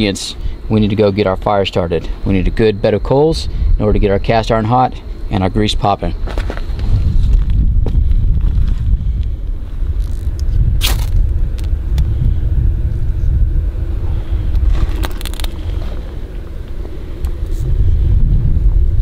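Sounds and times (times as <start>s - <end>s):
wind rumble on microphone: 3.2s - 4.6s, 6.1s - 19.0s.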